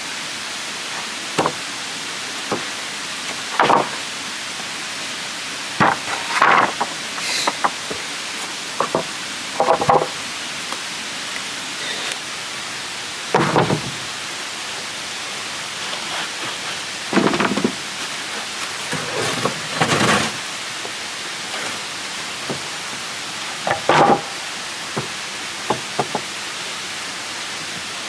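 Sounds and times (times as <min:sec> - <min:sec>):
background hiss: 0:00.0 - 0:28.0
wood knocking and scraping: 0:01.4 - 0:01.6, 0:02.5 - 0:02.7, 0:03.3 - 0:04.0, 0:05.8 - 0:08.0, 0:08.8 - 0:10.2, 0:13.3 - 0:14.0, 0:16.0 - 0:17.8, 0:18.9 - 0:21.8, 0:22.4 - 0:22.7, 0:23.6 - 0:24.4, 0:25.0 - 0:26.3.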